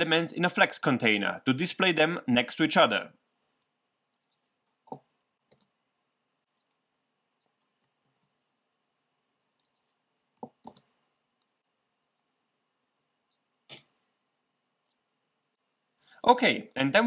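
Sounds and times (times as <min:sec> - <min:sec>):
mouse clicks: 0:04.2 - 0:05.8, 0:09.1 - 0:12.3.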